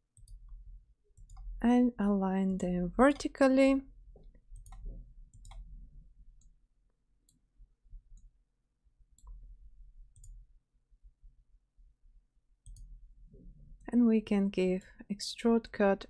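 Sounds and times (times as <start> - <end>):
computer mouse clicks: 0.2 - 0.6, 1.2 - 1.6, 4.2 - 5.7, 9.1 - 9.4, 10.1 - 10.4, 12.6 - 13.0.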